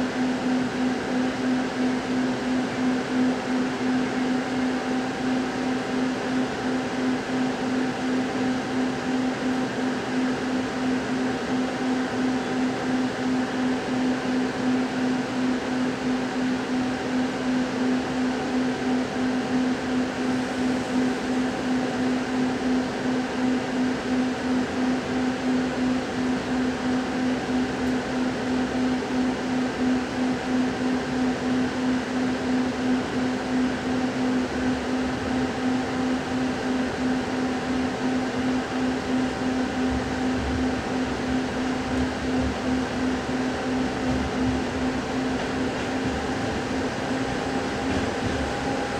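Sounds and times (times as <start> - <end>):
train carriage pulsing hum: 0.0 - 48.9
train running gear rumble: 39.4 - 48.9.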